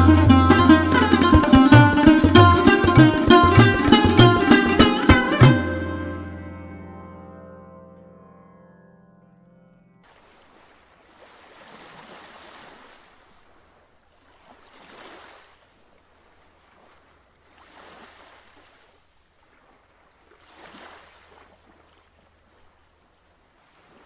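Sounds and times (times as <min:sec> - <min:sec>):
waves breaking and washing in: 0:10.0 - 0:24.0.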